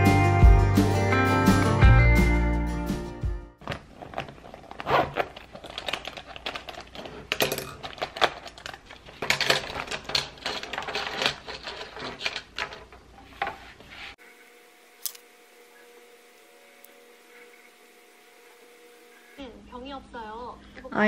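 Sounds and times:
pens clicking and clattering: 0:03.6 - 0:13.5.

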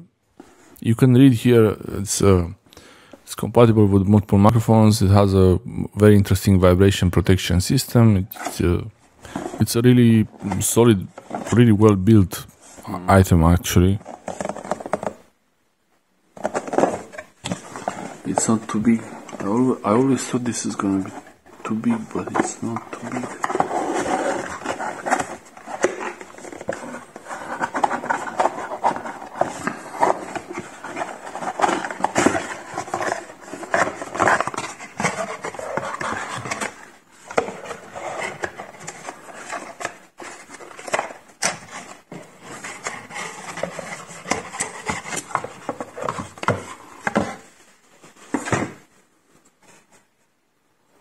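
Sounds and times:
packaging rustling and scraping: 0:08.3 - 0:11.9, 0:13.8 - 0:15.2, 0:16.4 - 0:50.2.

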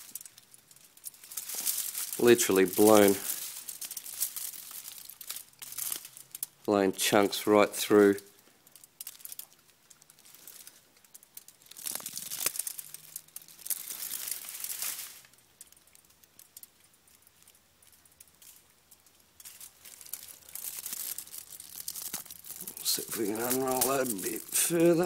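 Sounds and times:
foil and film crinkling: 0:00.0 - 0:25.0.

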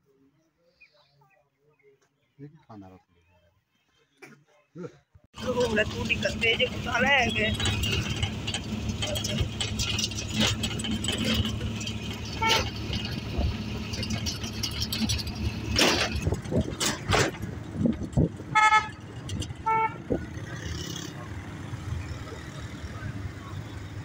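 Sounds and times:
road rumble: 0:05.3 - 0:24.0
vehicle engine running: 0:05.4 - 0:24.0
vehicle horn beeps: 0:12.3 - 0:12.7, 0:18.6 - 0:19.0.

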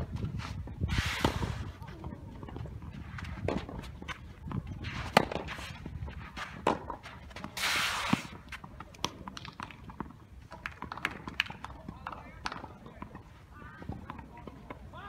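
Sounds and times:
shoes sliding on sandy court: 0:00.0 - 0:02.2, 0:02.8 - 0:08.8
racket hitting tennis ball: 0:03.4 - 0:05.8
ball bounces: 0:08.6 - 0:13.2.

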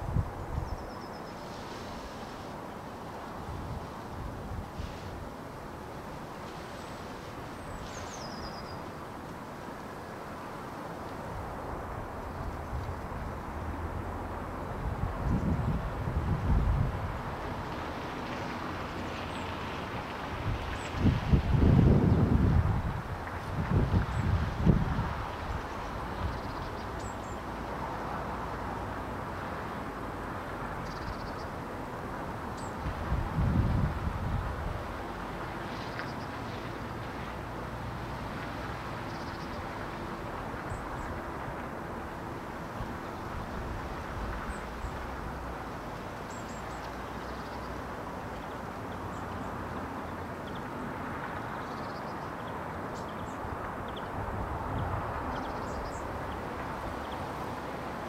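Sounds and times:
steady rushing background noise: 0:00.0 - 0:58.0
wind rumble on microphone: 0:00.0 - 0:58.0
faint high bird chirps: 0:00.6 - 0:01.5.

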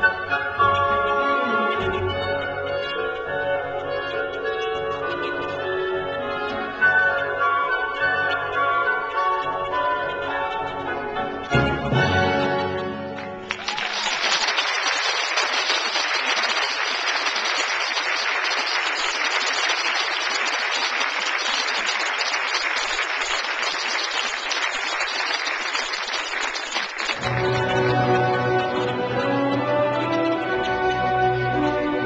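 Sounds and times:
orchestral music: 0:00.0 - 0:13.6, 0:27.2 - 0:32.0
audience applauding: 0:13.1 - 0:32.0.

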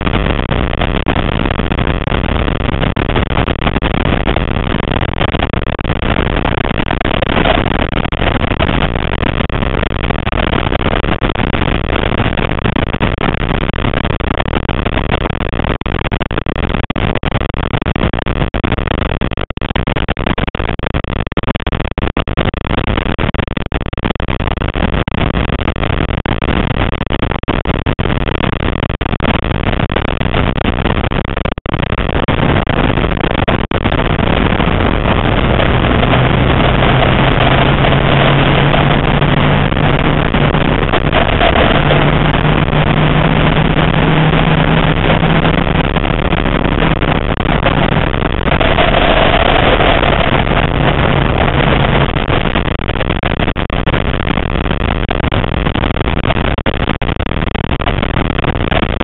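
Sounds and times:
road and wind noise: 0:00.0 - 0:13.2, 0:32.5 - 0:52.9
race car engine running hard: 0:34.3 - 0:48.0, 0:48.6 - 0:52.1.

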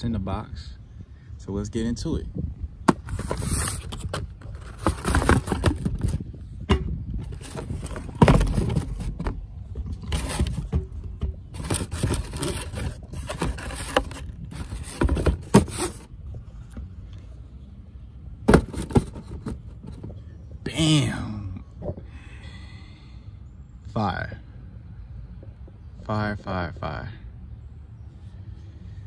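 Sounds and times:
cardboard box scraping and rustling: 0:02.9 - 0:06.2, 0:07.2 - 0:16.1, 0:18.5 - 0:20.2.

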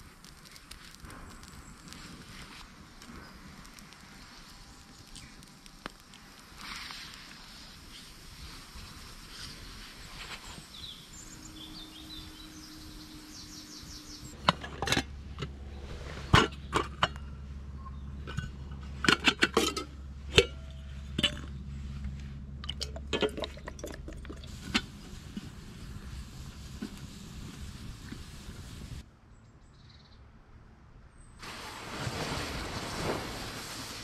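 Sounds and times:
low hum: 0:10.4 - 0:31.1.

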